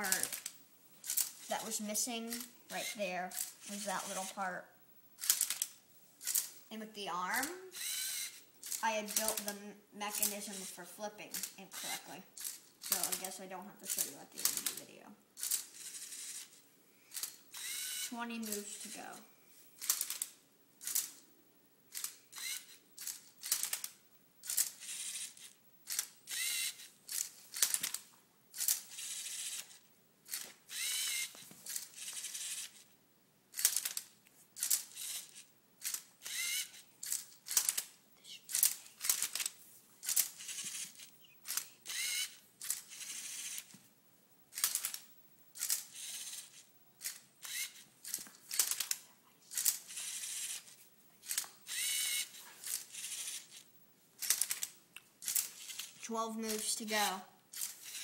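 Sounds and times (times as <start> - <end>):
plastic gears and cube clattering: 0.0 - 4.4, 7.3 - 19.0, 19.8 - 21.2, 22.0 - 32.8, 33.6 - 43.7, 44.5 - 53.6, 54.2 - 58.0
servo motors whirring: 0.0 - 4.5, 7.3 - 14.8, 15.4 - 19.1, 21.9 - 28.0, 28.6 - 32.9, 34.6 - 37.8, 38.5 - 43.7, 45.6 - 53.6, 54.2 - 58.0.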